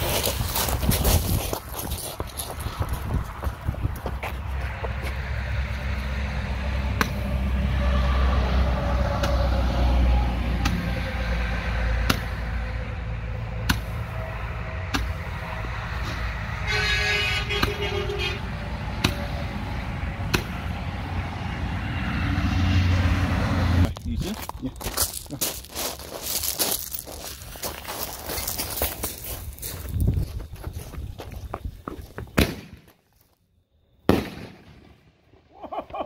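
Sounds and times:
steady low rumble: 0.0s - 7.8s
horn on one steady note: 16.6s - 18.5s
fireworks popping: 34.1s - 35.0s.

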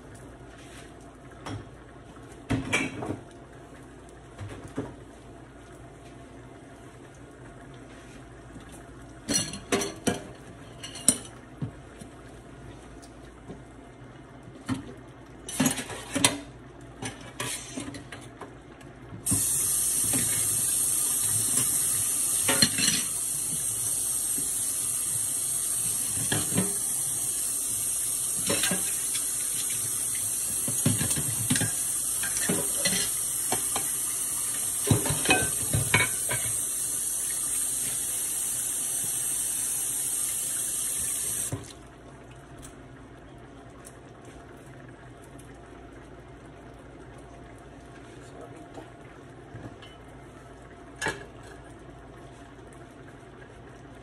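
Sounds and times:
kitchen tap running: 19.2s - 42.8s
dishes clinking: 22.4s - 23.2s, 30.8s - 33.9s, 34.9s - 36.5s.

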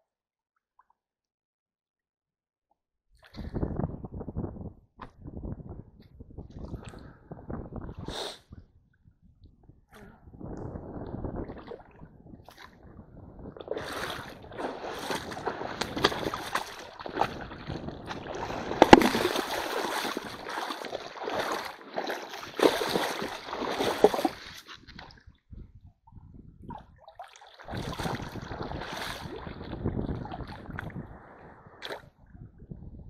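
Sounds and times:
stream water splashing: 13.6s - 25.1s, 27.1s - 30.9s.

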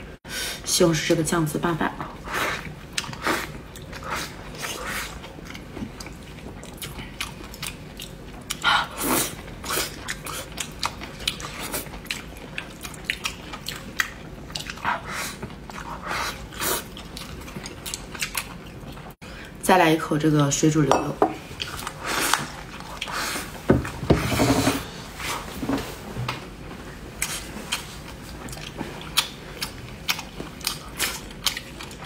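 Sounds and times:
person chewing food: 2.5s - 19.2s, 21.5s - 23.6s, 27.2s - 32.0s.

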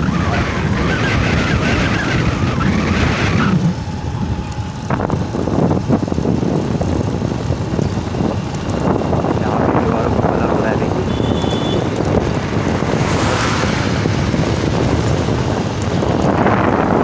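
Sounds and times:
road and engine noise: 0.0s - 17.0s
wind on microphone: 0.0s - 17.0s.

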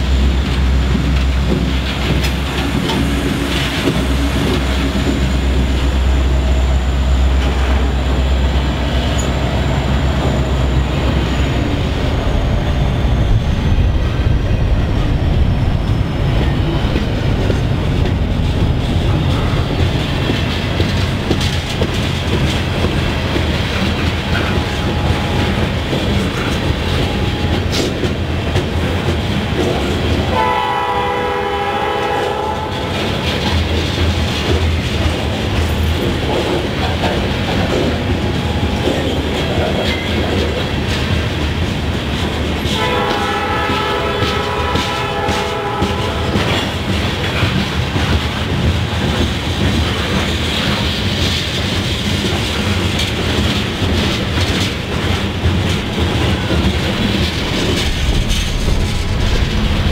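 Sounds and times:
diesel locomotive engine hum: 0.0s - 59.9s
train wheels clattering on rails: 0.0s - 59.9s
locomotive horn: 30.3s - 33.0s, 42.6s - 46.7s.

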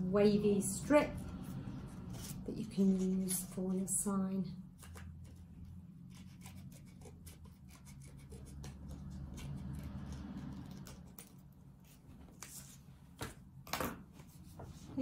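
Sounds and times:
scissors snipping paper: 6.1s - 12.7s.

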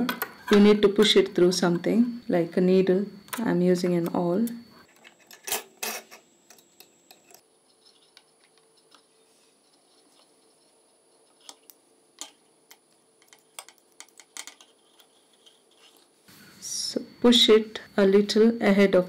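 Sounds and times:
light metal clicks and scrapes: 13.2s - 16.1s.

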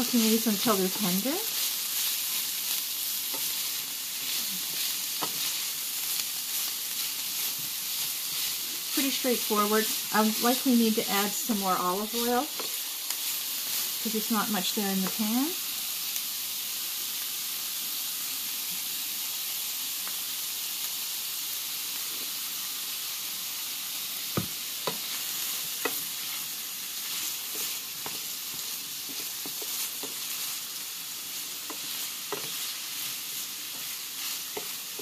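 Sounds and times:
wooden spoon scraping a pan: 0.0s - 15.3s, 24.4s - 35.0s
vegetables sizzling in a frying pan: 0.0s - 35.0s.

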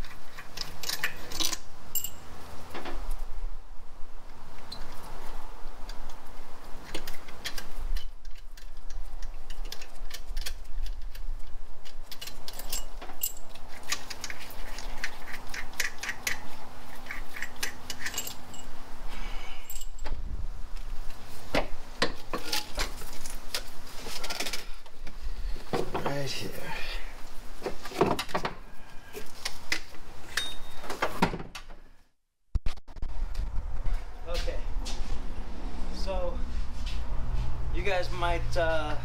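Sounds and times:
metal tools clicking and clinking: 0.3s - 2.2s, 6.9s - 18.8s, 19.6s - 20.1s.

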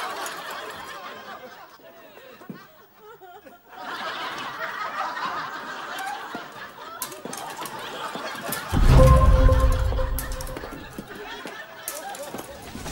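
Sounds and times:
loud deep boom: 8.8s - 11.0s.

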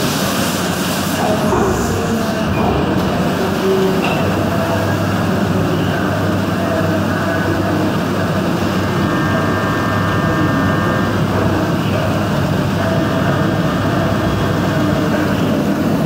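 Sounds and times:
coolant spray hissing and splattering: 0.0s - 9.0s.

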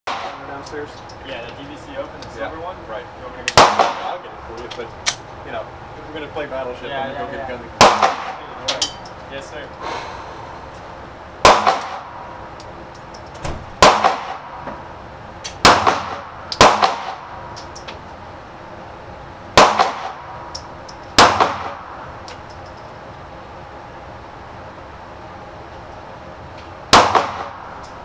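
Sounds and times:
handgun shots echoing: 3.5s - 4.1s, 7.8s - 8.4s, 11.4s - 12.1s, 13.8s - 14.5s, 15.5s - 17.2s, 19.6s - 20.2s.

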